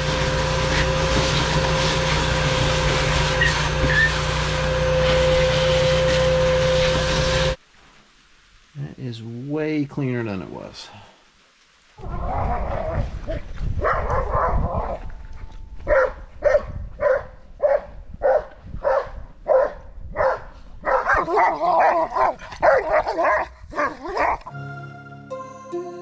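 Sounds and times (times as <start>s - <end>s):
dog barking: 13.8s - 15.0s, 15.9s - 24.4s.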